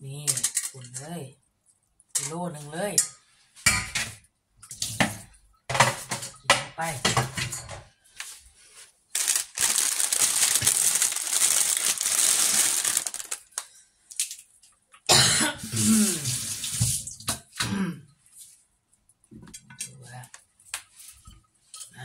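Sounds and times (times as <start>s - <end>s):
person speaking: 0.0s - 1.4s, 2.2s - 3.1s, 19.8s - 20.4s
water running from a tap: 15.7s - 17.4s.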